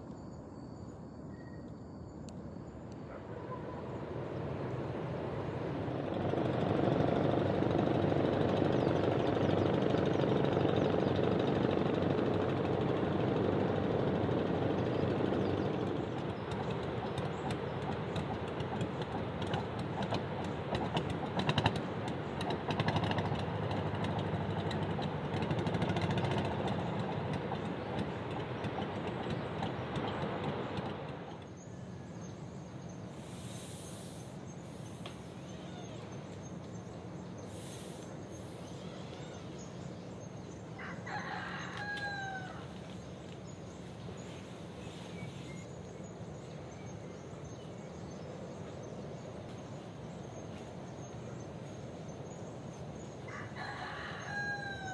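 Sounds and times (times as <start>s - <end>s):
faint high insect tone: 0.0s - 4.8s, 31.5s - 54.3s
steady rumbling noise: 3.3s - 31.6s
rooster crowing: 40.8s - 42.8s, 53.3s - 54.9s.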